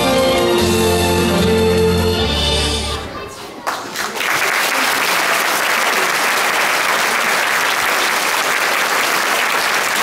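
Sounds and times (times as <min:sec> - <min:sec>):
crowd applauding: 0:03.6 - 0:10.0.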